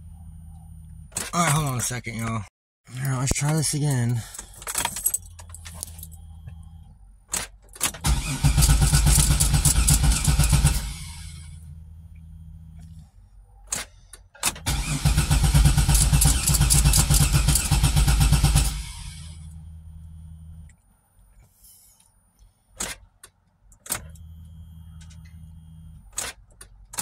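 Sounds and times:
low steady hum: 0:00.0 - 0:08.5, 0:10.8 - 0:14.1, 0:19.0 - 0:22.8, 0:23.5 - 0:26.2
car starter cranking engine: 0:07.3 - 0:11.9, 0:12.8 - 0:19.7
sharp clicks: 0:15.9 - 0:17.8.

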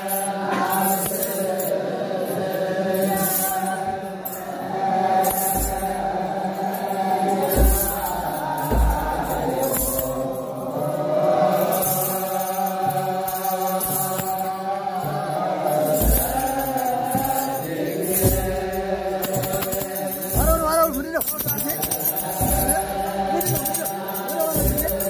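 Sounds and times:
men's choir chanting: 0:00.0 - 0:25.0
sistra jingling: 0:02.4 - 0:25.0
deep drum beats: 0:07.5 - 0:10.3, 0:16.0 - 0:25.0.

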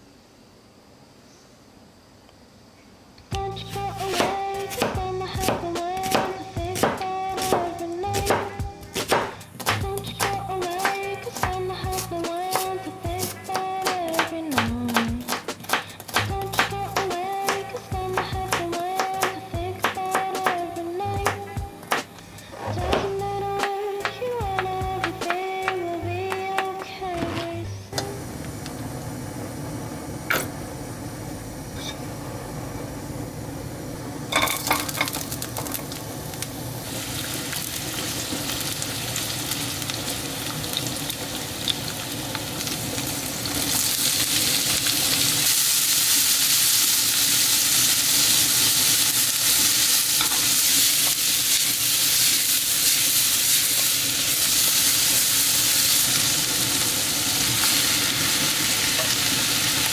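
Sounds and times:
oil sizzling in a wok: 0:28.0 - 0:59.9.

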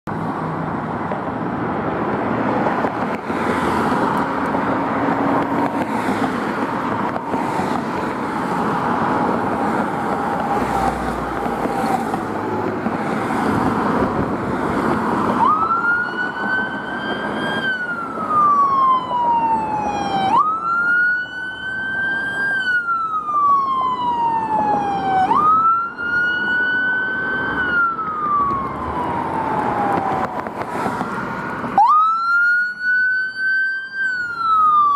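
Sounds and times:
fire engines running: 0:00.1 - 0:34.9
siren wailing: 0:08.3 - 0:12.4, 0:14.8 - 0:30.7, 0:31.8 - 0:34.9.

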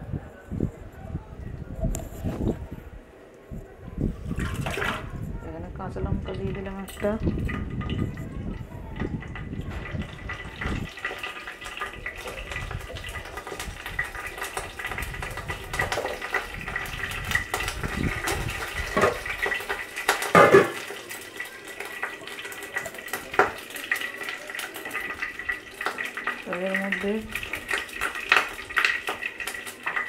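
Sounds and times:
seeds sizzling in hot oil: 0:09.2 - 0:30.0.

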